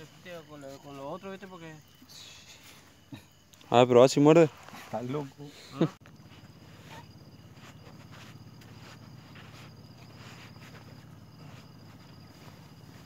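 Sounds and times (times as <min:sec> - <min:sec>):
crickets trilling: 0:00.0 - 0:13.0
soft scuffs and rustles: 0:06.0 - 0:13.0.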